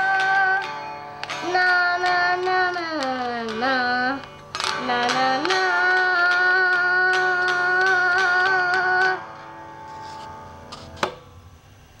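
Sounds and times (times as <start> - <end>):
child singing a long note: 0.0 - 0.8, 1.4 - 9.4.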